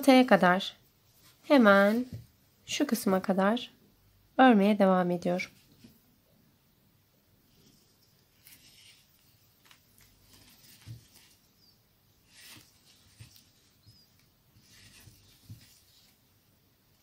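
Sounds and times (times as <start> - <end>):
yarn rustling and scratching: 7.5 - 16.5.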